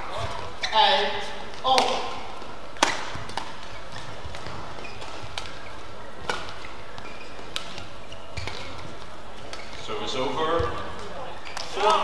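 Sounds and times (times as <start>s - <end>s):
arena hall noise: 0.0s - 12.0s
shoe squeaks on court: 0.1s - 1.0s, 2.8s - 11.8s
rackets striking shuttlecock: 1.4s - 9.8s.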